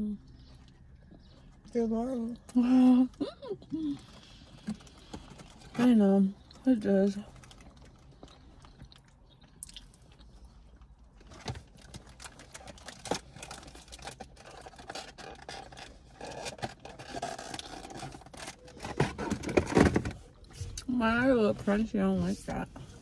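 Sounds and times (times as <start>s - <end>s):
cookies being chewed: 3.4s - 19.2s
paper wrapper crinkling: 11.2s - 19.8s.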